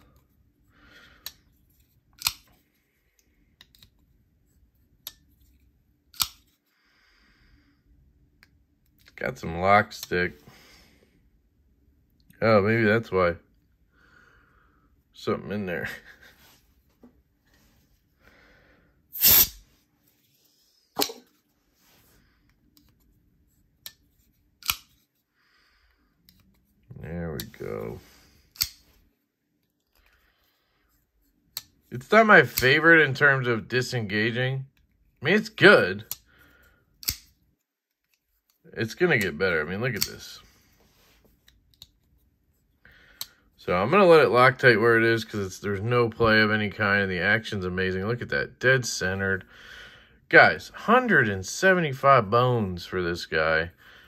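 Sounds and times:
folding knife metallic clicks: 0:02.2 - 0:02.5, 0:06.2 - 0:06.4, 0:24.6 - 0:24.9, 0:28.6 - 0:28.8, 0:37.0 - 0:37.3
folding knife blade clicking: 0:24.6 - 0:24.9, 0:28.6 - 0:28.8
faint handling rustle: 0:40.1 - 0:42.8.

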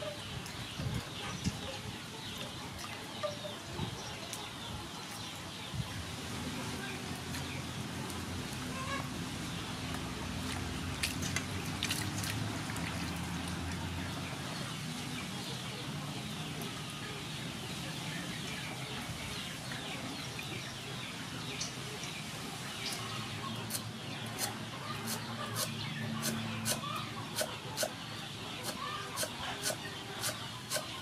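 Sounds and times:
birds calling faintly: 0:00.0 - 0:31.0
sharp splashes and knocks: 0:10.4 - 0:13.3
water sloshing in a steel bowl: 0:10.4 - 0:13.8.

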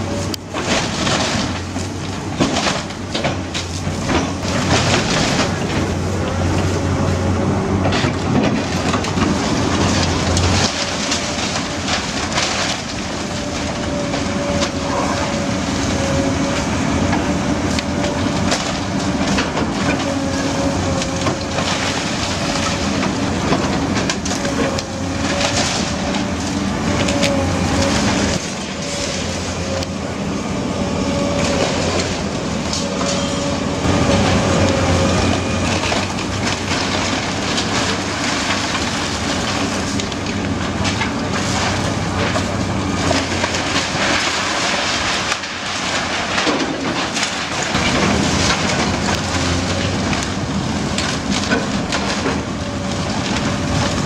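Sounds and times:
excavator diesel engine running: 0:00.0 - 0:54.0
timber cracking and crashing down: 0:00.5 - 0:05.9, 0:07.8 - 0:30.0, 0:34.1 - 0:54.0.

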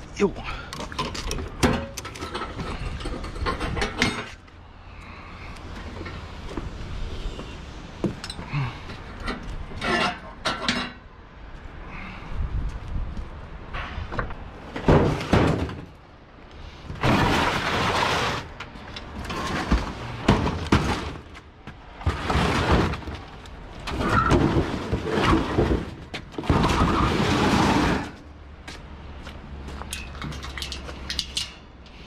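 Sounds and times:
sheet metal scraping over steel: 0:17.0 - 0:18.6, 0:26.5 - 0:28.2.

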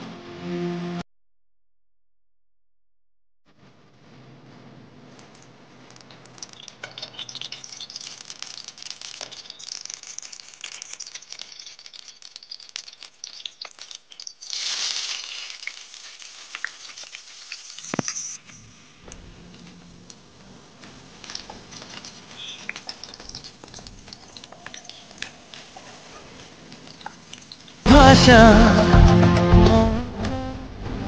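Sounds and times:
oil crackling in a wok: 0:05.1 - 0:27.9
potatoes sizzling in hot oil: 0:06.0 - 0:19.1, 0:20.8 - 0:27.9.

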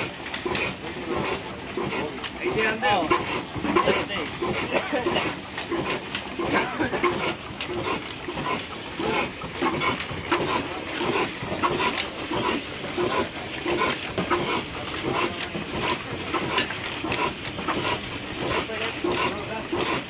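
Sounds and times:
stationary diesel engine running: 0:00.0 - 0:20.0.

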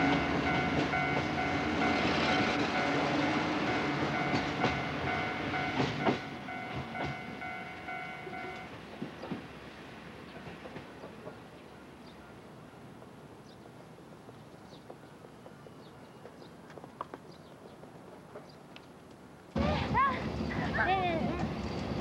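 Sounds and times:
train wheels clacking over rails: 0:00.0 - 0:12.2.

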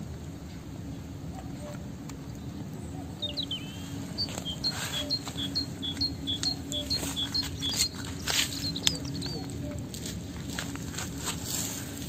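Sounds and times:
low hum: 0:00.0 - 0:12.0
bird singing two-note phrase: 0:03.2 - 0:08.0
cats crunching food: 0:04.0 - 0:12.0.

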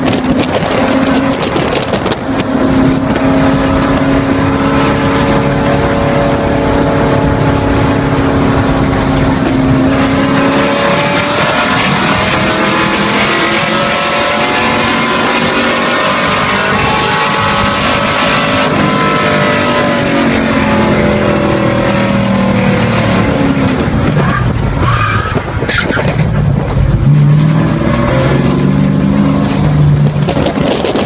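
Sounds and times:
race car engine: 0:00.0 - 0:31.0
tires squealing: 0:09.2 - 0:21.6, 0:23.7 - 0:26.4.

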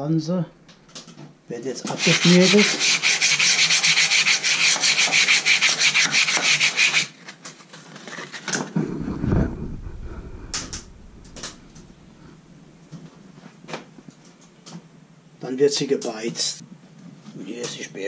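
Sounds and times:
sanding a wooden shaft: 0:01.9 - 0:07.1
low rumble: 0:08.8 - 0:12.8.

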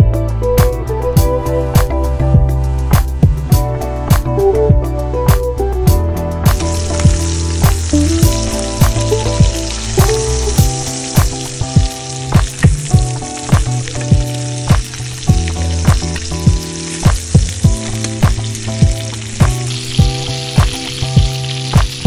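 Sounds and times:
background music with steady beat: 0:00.0 - 0:22.0
chicken sizzling in a pan: 0:06.5 - 0:22.0.

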